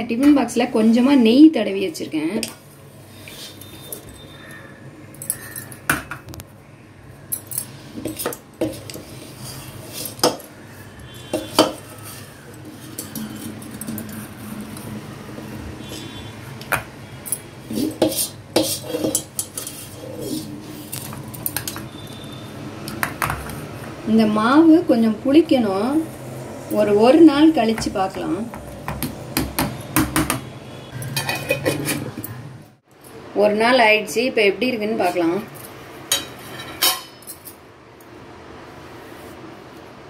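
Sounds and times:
ladle clinking on steel vessels: 0:31.0 - 0:32.4.

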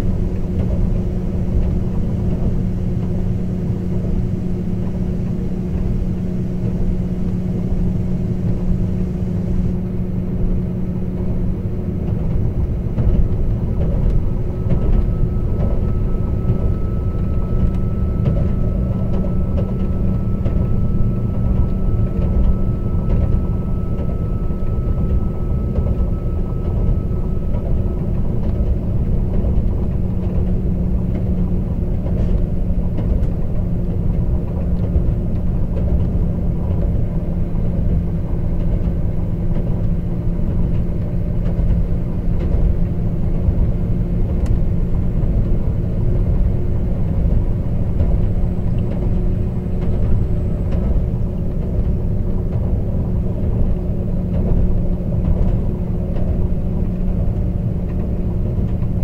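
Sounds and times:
faint high whine: 0:00.0 - 0:30.8
diesel engine droning: 0:00.0 - 0:59.0
wheels rumbling on rail: 0:00.0 - 0:59.0.

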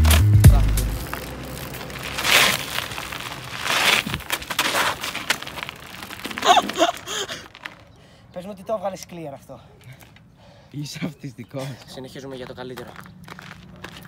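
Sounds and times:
bike tyres crunching on dirt: 0:00.0 - 0:08.5, 0:11.6 - 0:14.0.

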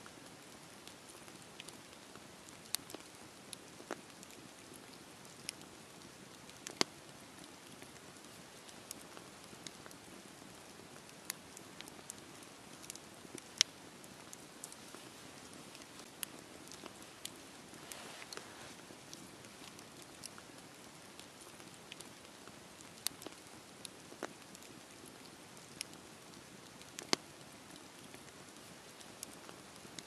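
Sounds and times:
campfire crackling and popping: 0:00.0 - 0:30.0
fire hissing: 0:14.2 - 0:20.2.

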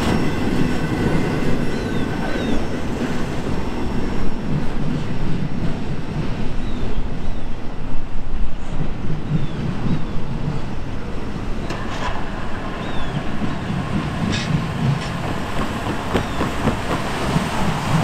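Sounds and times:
distant train rumble and clatter: 0:00.0 - 0:18.0
tyres bumping over rails: 0:11.6 - 0:18.0.

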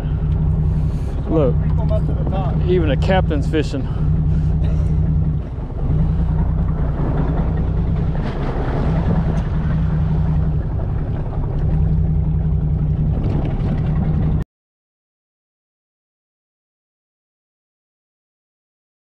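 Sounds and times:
boat engine idling: 0:00.0 - 0:14.4
water noise: 0:00.0 - 0:14.4
wind: 0:00.0 - 0:14.4.

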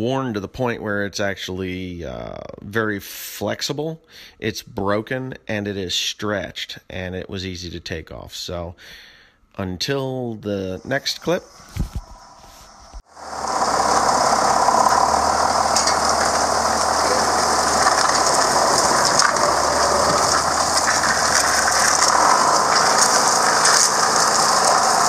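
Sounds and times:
tractor engine running: 0:11.5 - 0:25.0
rubber track dragging on mud: 0:13.2 - 0:25.0.

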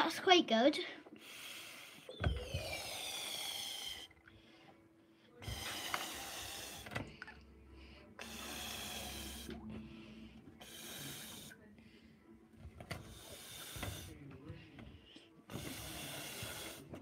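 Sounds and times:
breath blown into balloons: 0:01.2 - 0:04.2, 0:05.4 - 0:07.0, 0:08.2 - 0:11.6, 0:13.0 - 0:14.2, 0:15.5 - 0:16.9.

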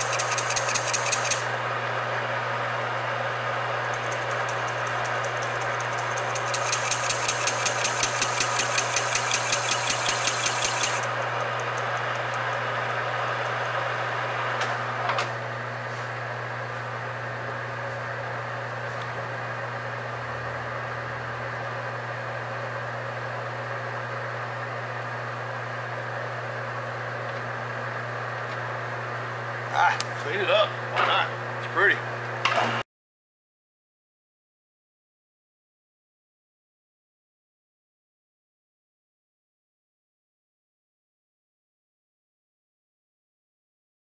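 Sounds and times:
sharp clicks: 0:00.0 - 0:01.4, 0:04.0 - 0:12.7
harsh pulsing cutting noise: 0:00.0 - 0:01.6, 0:03.9 - 0:14.4
metal lathe humming: 0:00.0 - 0:01.6, 0:03.6 - 0:14.6.

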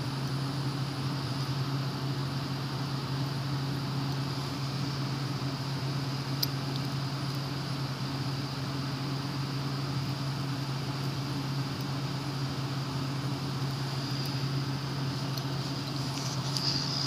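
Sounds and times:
fidget spinner whirring: 0:12.9 - 0:17.0.

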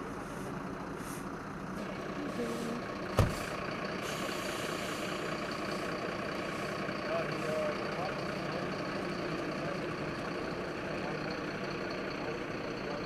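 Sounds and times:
vehicle engines idling: 0:00.0 - 0:13.0
sharp knock: 0:03.2 - 0:03.4.

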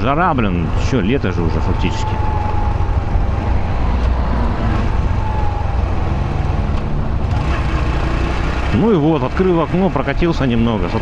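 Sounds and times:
wind noise: 0:00.6 - 0:07.5.

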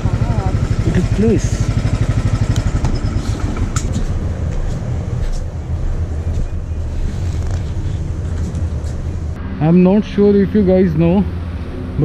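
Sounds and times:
motorcycle engine idling: 0:00.0 - 0:03.9.

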